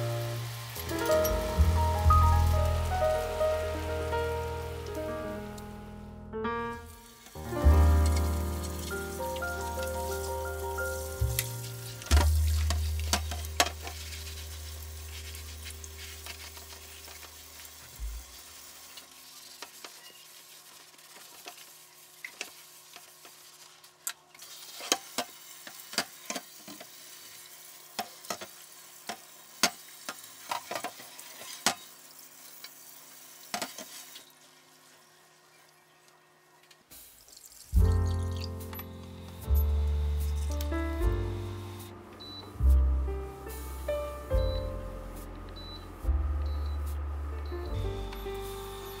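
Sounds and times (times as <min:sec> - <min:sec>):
soft background music: 0:00.0 - 0:17.3, 0:37.8 - 0:49.0
brush scrubbing grill plate: 0:12.5 - 0:17.2.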